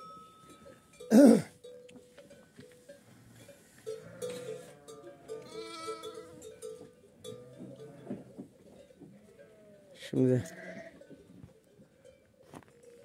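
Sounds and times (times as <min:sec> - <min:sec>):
sheep bleating: 0:04.0 - 0:06.4, 0:09.2 - 0:11.0.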